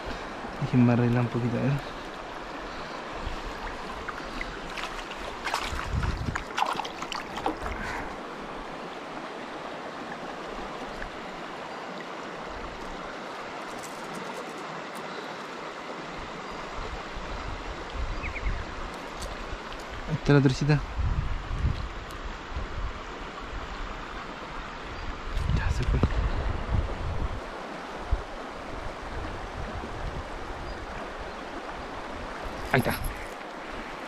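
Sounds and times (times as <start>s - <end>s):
river flowing over shallow bed: 0.0s - 34.0s
handling sounds and splashes: 4.0s - 8.2s, 13.6s - 15.6s.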